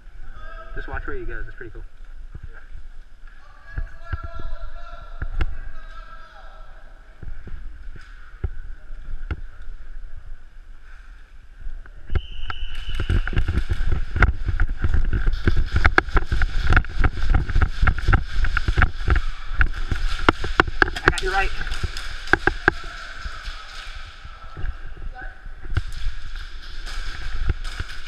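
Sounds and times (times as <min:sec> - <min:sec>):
camera rumble and rubbing: 0:07.1 - 0:28.0.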